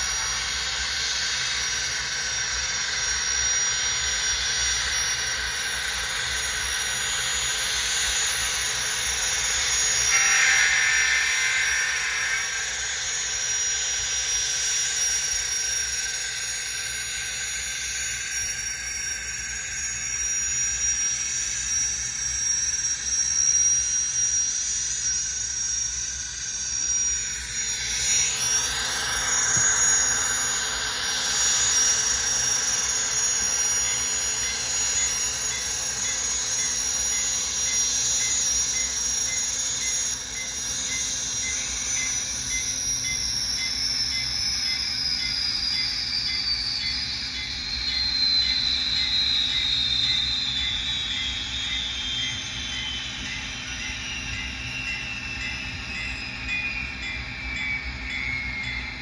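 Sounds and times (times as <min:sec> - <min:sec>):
model locomotive turbine whine: 0:00.0 - 0:59.0.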